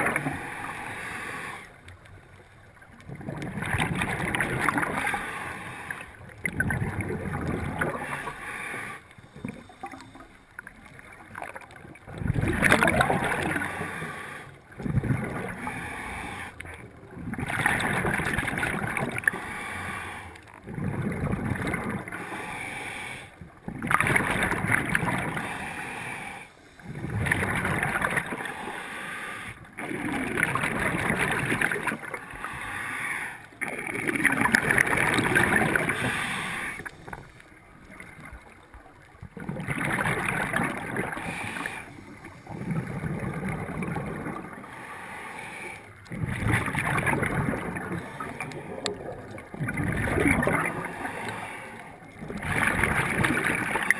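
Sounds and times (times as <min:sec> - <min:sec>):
diver breathing through regulator: 0:00.0 - 0:01.8, 0:04.7 - 0:06.2, 0:07.7 - 0:10.5, 0:12.7 - 0:16.9, 0:19.1 - 0:23.4, 0:24.9 - 0:30.0, 0:32.1 - 0:38.6, 0:40.3 - 0:49.4, 0:50.0 - 0:53.9
exhaled bubbles underwater: 0:00.0 - 0:19.7, 0:20.5 - 0:22.5, 0:23.4 - 0:26.0, 0:26.7 - 0:28.8, 0:29.6 - 0:32.7, 0:33.5 - 0:44.8, 0:45.4 - 0:53.9.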